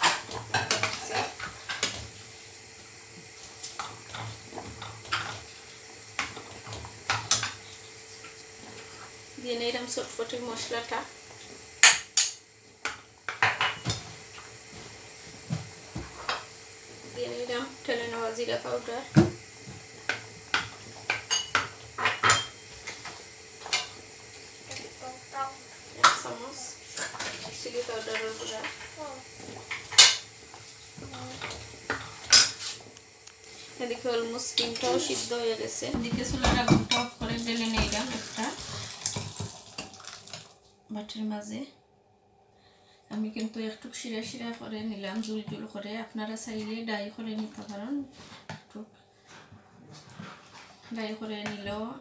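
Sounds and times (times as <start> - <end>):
faint steady hum: 0.0 - 49.8
utensils clinking on saucepan: 21.1 - 22.7, 28.0 - 28.8.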